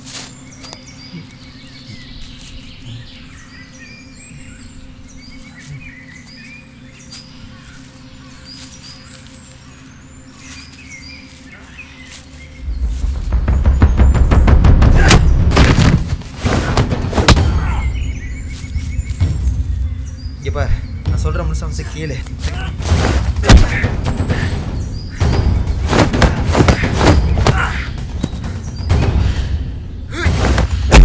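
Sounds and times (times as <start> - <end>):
small birds chirping: 0.0 - 31.0
loud low rumble: 12.6 - 26.5.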